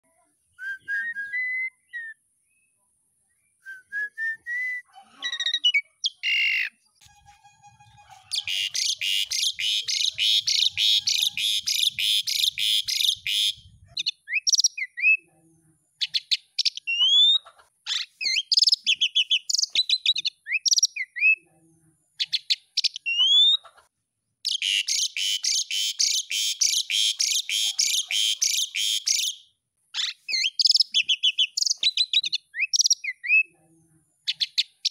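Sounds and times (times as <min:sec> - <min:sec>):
starling whistling and chattering: 0:08.3 - 0:13.6, 0:24.5 - 0:29.4, 0:30.0 - 0:33.4.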